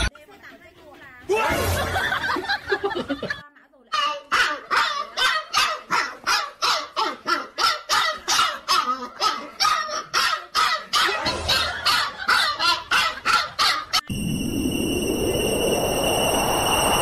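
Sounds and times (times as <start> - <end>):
puppy barking: 4.0 - 14.0.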